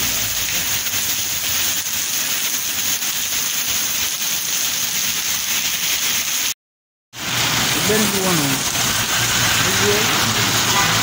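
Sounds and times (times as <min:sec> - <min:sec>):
heavy rain on pavement: 0:00.0 - 0:06.6, 0:07.2 - 0:11.0.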